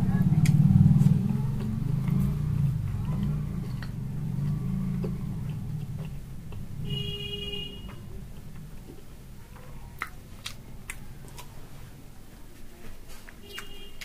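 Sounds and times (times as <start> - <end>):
eating by hand: 0.0 - 6.8, 7.8 - 14.0
wet clicks and smacks: 0.3 - 0.6, 9.9 - 11.6.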